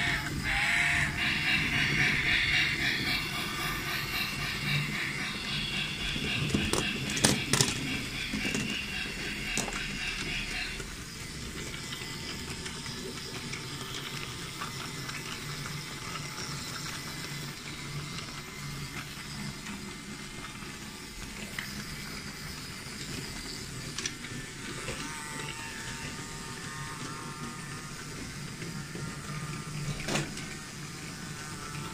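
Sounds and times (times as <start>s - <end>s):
high whine: 0.0s - 14.8s
toy train motors whirring: 0.0s - 31.9s.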